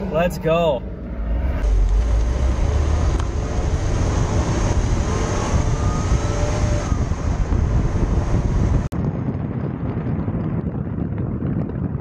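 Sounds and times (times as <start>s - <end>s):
car engine accelerating: 0.0s - 8.9s
wind noise: 0.0s - 12.0s.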